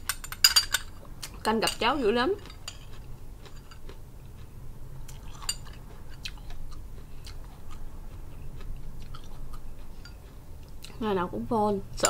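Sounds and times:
low steady hum: 0:00.0 - 0:12.0
chewing and mouth sounds: 0:02.4 - 0:11.0.

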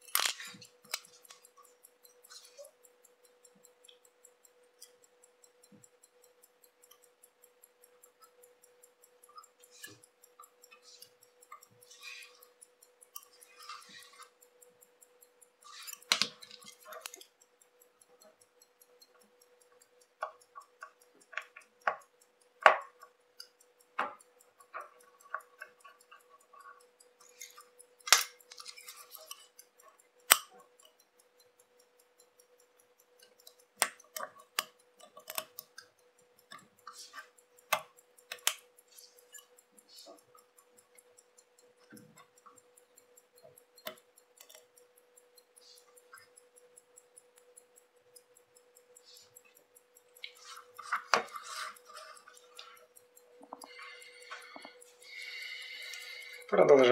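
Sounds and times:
metal tool clicks and taps: 0:00.0 - 0:02.3, 0:15.8 - 0:17.3, 0:19.0 - 0:31.2, 0:33.0 - 0:42.6, 0:43.2 - 0:56.9
faint steady tone: 0:00.0 - 0:56.9.

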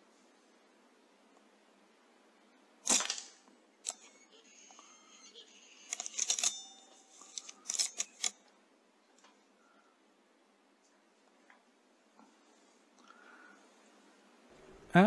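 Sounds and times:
air rifle shot: 0:02.8 - 0:03.4
high-pitched squeaks: 0:03.9 - 0:08.2.

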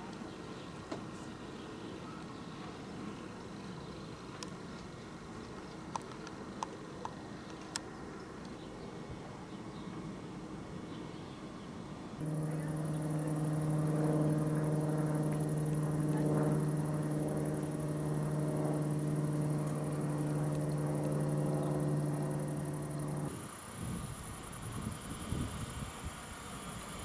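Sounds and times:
propeller aircraft engine drone: 0:12.2 - 0:25.2.

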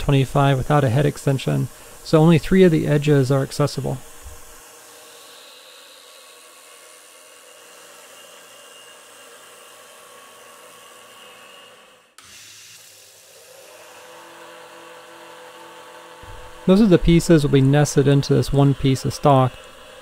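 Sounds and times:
coolant sprayer hiss: 0:00.0 - 0:04.6, 0:16.2 - 0:19.8
milling machine cutting metal: 0:00.0 - 0:20.0.

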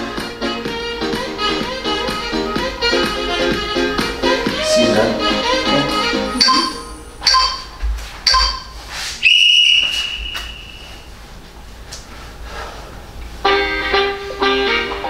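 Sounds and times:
long high steady tone: 0:04.5 - 0:07.3
short beeps: 0:06.4 - 0:08.7.

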